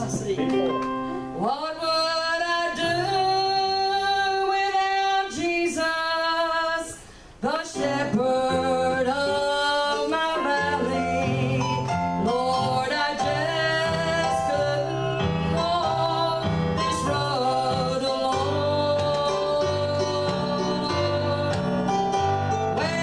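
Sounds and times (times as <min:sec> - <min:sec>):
instrumental accompaniment: 0:00.0 - 0:01.4, 0:07.8 - 0:23.0
woman singing gospel song: 0:01.4 - 0:23.0.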